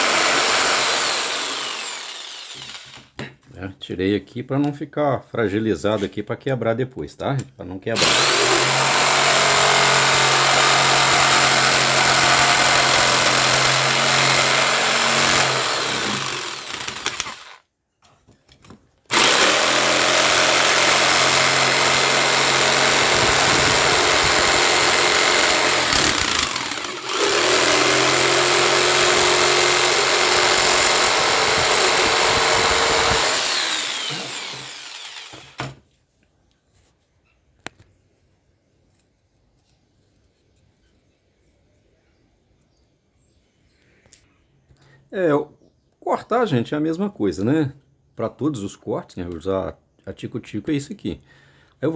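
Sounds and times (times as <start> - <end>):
jigsaw cutting wood: 0.0 - 3.1, 8.0 - 17.6, 19.1 - 35.8.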